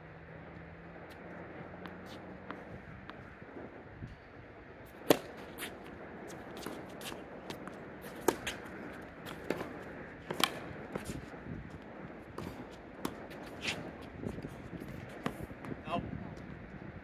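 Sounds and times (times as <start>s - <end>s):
tennis ball bounces: 1.0s - 3.4s, 4.8s - 15.8s
racket hitting tennis ball: 1.1s - 3.4s, 4.8s - 15.8s
shoe scuffs on court: 1.8s - 3.2s, 4.9s - 11.3s, 12.4s - 15.5s.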